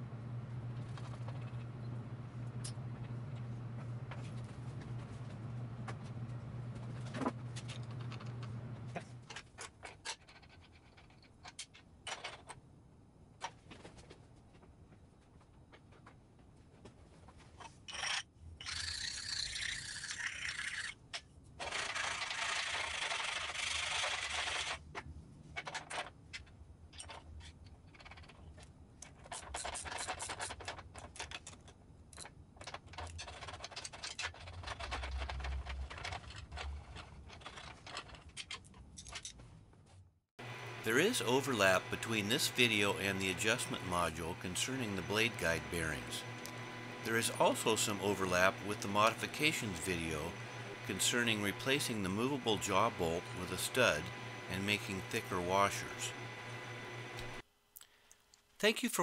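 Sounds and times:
low steady hum: 0.0s - 9.4s, 40.4s - 57.4s.

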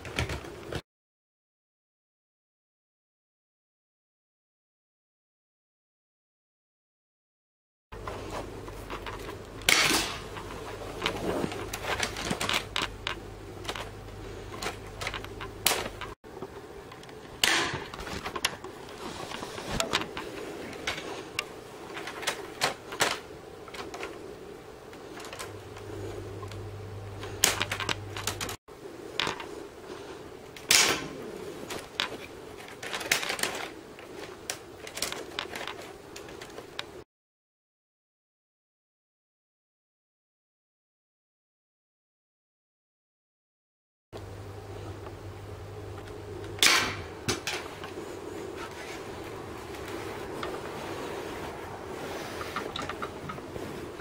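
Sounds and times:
sharp plastic snap: 17.4s - 18.5s, 30.6s - 31.1s, 46.5s - 47.6s
plastic mechanism clicking: 31.7s - 36.9s.

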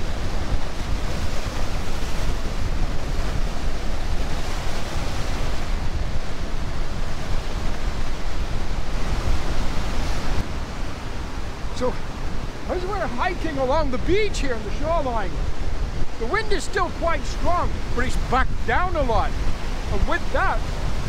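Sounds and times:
waves washing on sandy shore: 0.0s - 21.0s
wind buffeting microphone: 0.0s - 21.0s.

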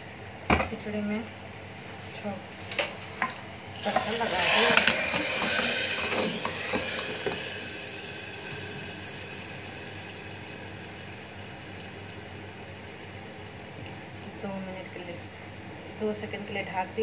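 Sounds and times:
ghee sizzling: 3.8s - 15.2s.

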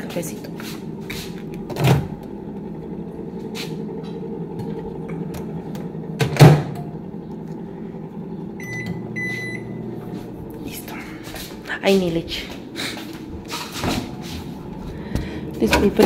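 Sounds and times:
microwave humming: 0.0s - 16.0s
keypad beeps: 8.6s - 9.7s.

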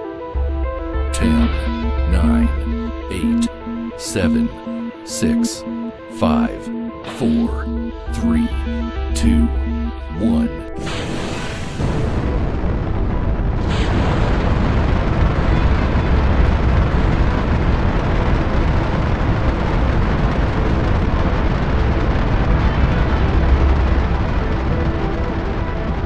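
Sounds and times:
rocket engines roaring at liftoff: 10.8s - 26.0s.

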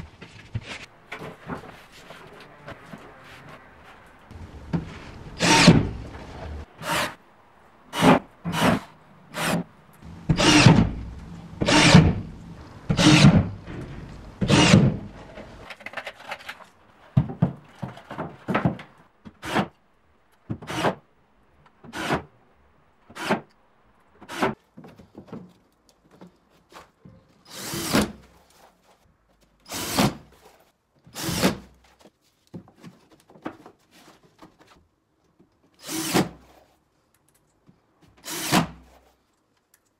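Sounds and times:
cordless drill driving screws: 5.4s - 5.8s, 10.4s - 10.8s, 11.6s - 12.2s, 14.4s - 14.9s, 35.8s - 36.3s, 38.2s - 38.7s.

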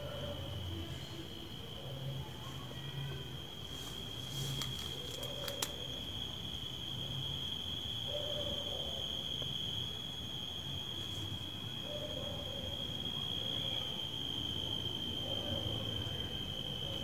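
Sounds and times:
cricket trilling: 0.0s - 17.0s
sharp clicks: 4.6s - 5.8s.

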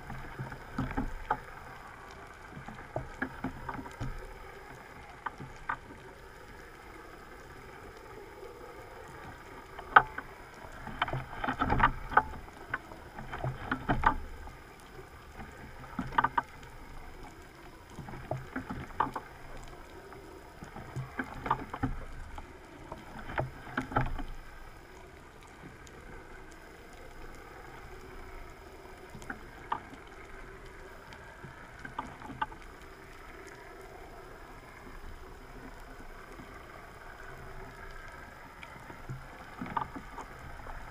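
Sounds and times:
steady hiss: 0.0s - 40.9s
underwater knocks and clicks: 0.0s - 40.9s
water swishing underwater: 0.0s - 40.9s.

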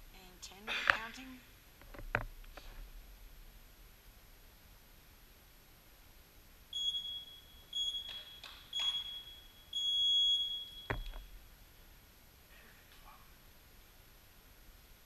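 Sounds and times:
high-pitched electronic beep: 6.8s - 11.1s.

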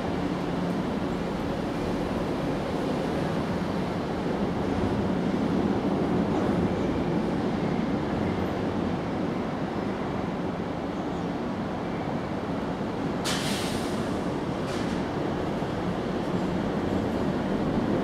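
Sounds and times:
sharp hiss: 13.2s - 14.2s.

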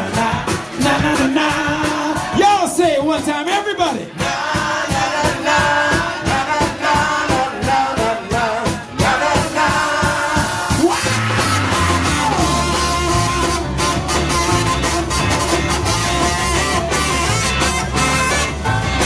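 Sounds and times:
bass and guitar groove: 0.0s - 19.0s
drum beat: 0.0s - 19.0s
horn section playing: 8.4s - 19.0s.

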